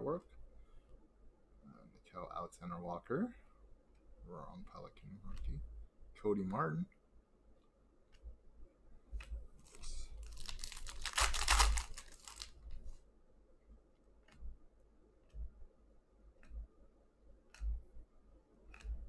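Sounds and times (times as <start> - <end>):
trading cards clicking: 10.2 - 12.5
foil wrapper tearing and crinkling: 10.2 - 12.6.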